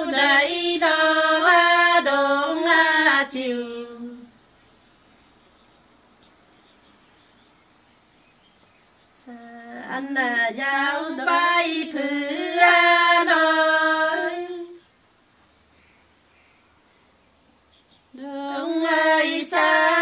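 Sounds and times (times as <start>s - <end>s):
person singing folk song: 0.0s - 4.3s.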